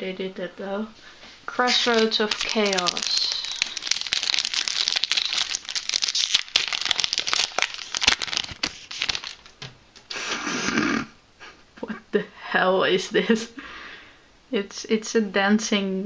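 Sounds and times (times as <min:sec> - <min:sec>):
cards rustling: 0:01.5 - 0:09.7
foil wrapper crinkling and tearing: 0:01.5 - 0:09.7.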